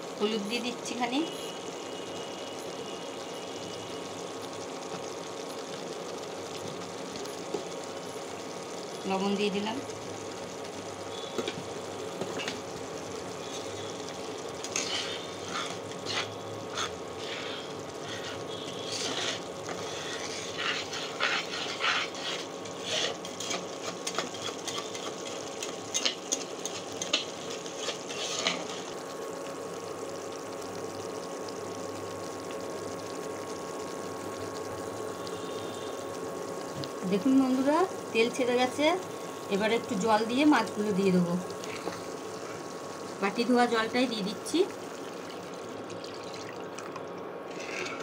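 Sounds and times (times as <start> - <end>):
cooktop hum: 0.0 - 48.0
masala sizzling in oil: 0.0 - 48.0
spatula scraping and tapping pan: 12.2 - 12.6, 14.6 - 28.8, 47.5 - 48.0.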